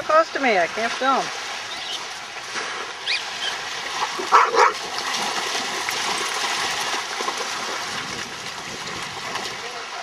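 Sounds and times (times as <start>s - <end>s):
small waves on shore: 0.0s - 10.0s
dog barking: 4.3s - 4.8s.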